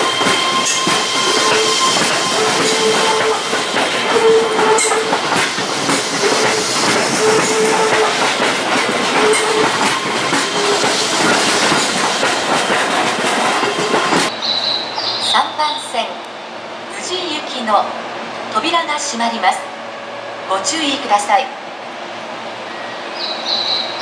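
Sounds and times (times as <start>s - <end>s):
wheel squeals: 0.0s - 8.4s, 9.1s - 14.3s
wheels clattering over rail joints: 0.0s - 14.3s
electric train rolling: 0.0s - 14.4s.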